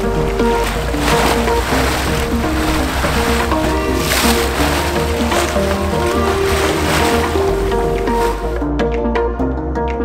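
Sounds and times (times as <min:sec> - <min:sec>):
background music with deep bass: 0:00.0 - 0:10.0.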